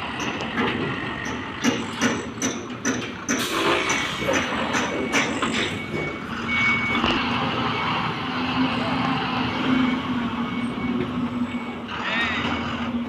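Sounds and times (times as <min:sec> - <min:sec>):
diesel truck engine running: 0:00.0 - 0:13.0
reversing alarm beeps: 0:03.6 - 0:12.9.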